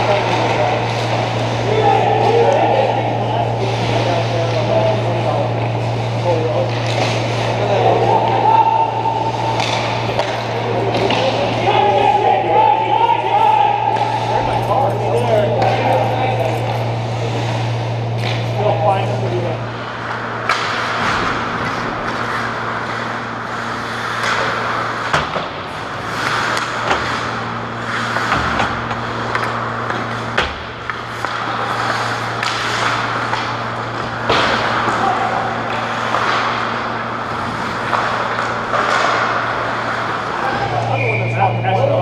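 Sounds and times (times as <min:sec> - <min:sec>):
hockey sticks and puck clacking: 0:00.0 - 0:19.0, 0:19.8 - 0:42.0
steady low hum: 0:00.0 - 0:42.0.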